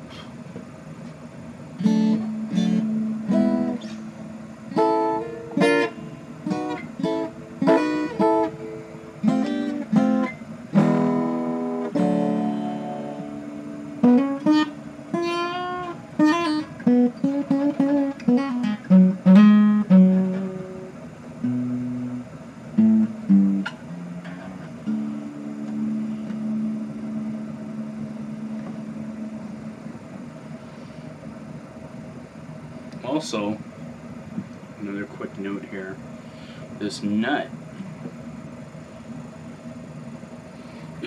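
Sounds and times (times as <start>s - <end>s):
acoustic guitar playing: 1.8s - 31.1s.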